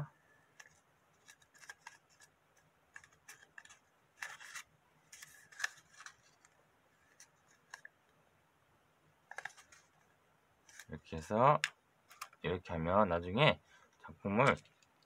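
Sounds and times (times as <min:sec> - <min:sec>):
paper rustling and crackling: 0:00.5 - 0:07.9.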